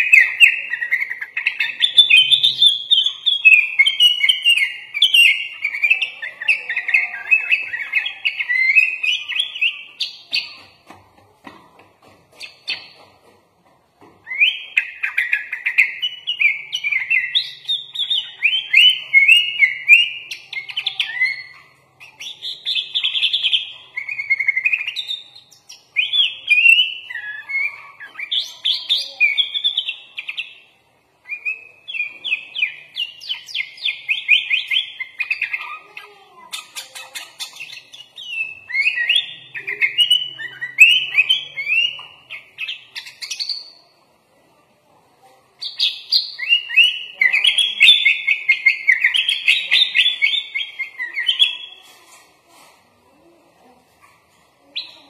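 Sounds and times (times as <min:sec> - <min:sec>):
bulbul singing chirping phrases: 0:00.0 - 0:10.6, 0:14.3 - 0:44.0.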